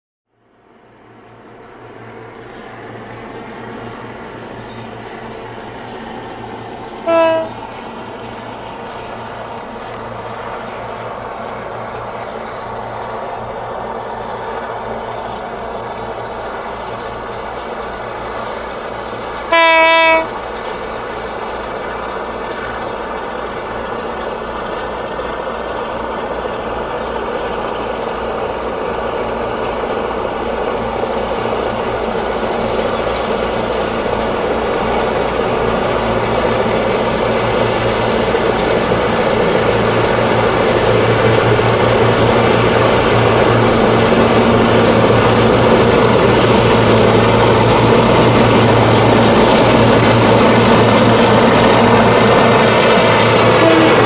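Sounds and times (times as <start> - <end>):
diesel locomotive engine rumble: 0.3 - 54.0
locomotive horn: 7.0 - 7.6, 19.5 - 20.4, 53.2 - 54.0.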